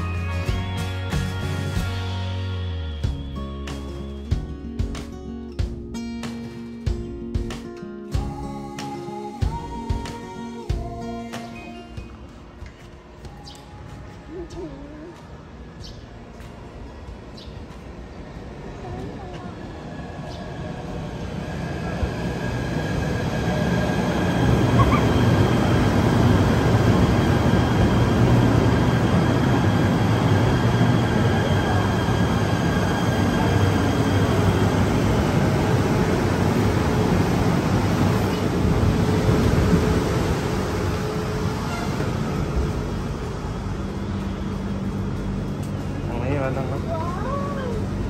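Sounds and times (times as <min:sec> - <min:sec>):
train wheels rumbling on rails: 0:12.1 - 0:48.0.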